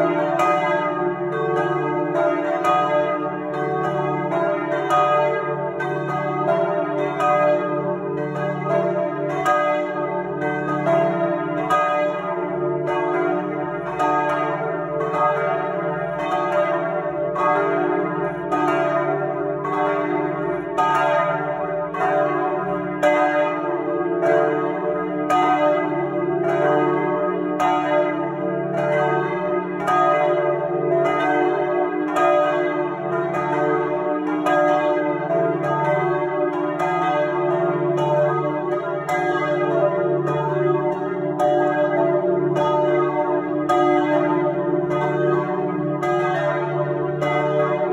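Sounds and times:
church bells ringing: 0.0s - 47.9s.

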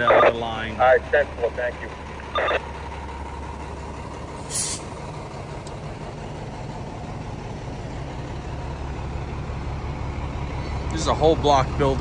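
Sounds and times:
diesel engine idling: 0.0s - 12.0s
air brake hiss: 4.4s - 4.9s.

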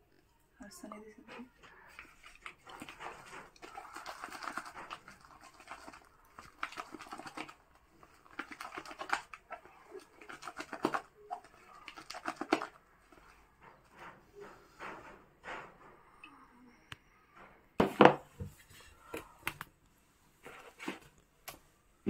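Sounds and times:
spatula scraping plastic bowl: 1.4s - 15.1s.

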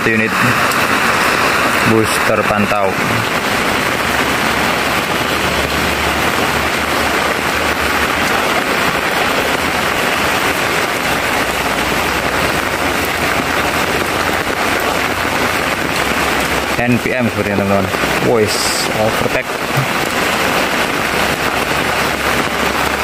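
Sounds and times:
bus and car approaching: 0.0s - 16.9s
heavy rain on a road: 0.0s - 23.0s.

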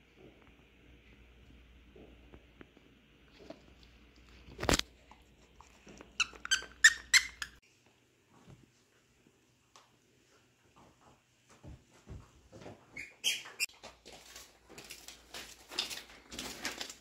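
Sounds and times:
toy squeaker squeaking: 6.2s - 7.6s.

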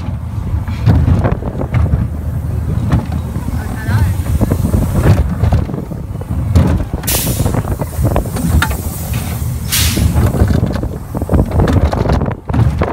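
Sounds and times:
roller coaster wheels rumbling: 0.0s - 12.9s
air brake hisses: 7.0s - 11.5s.

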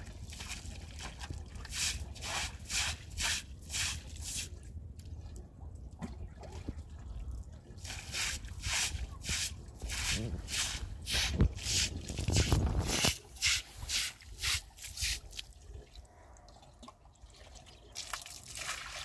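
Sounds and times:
water dripping and trickling: 0.0s - 10.0s, 11.0s - 19.0s
broom scrubbing wet stone floor: 1.7s - 4.6s, 7.8s - 15.3s.

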